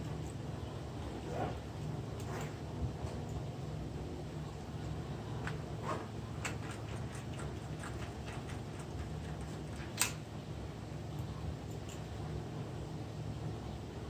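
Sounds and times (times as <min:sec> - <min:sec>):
metal tools clicking and tapping: 0:11.7 - 0:12.1.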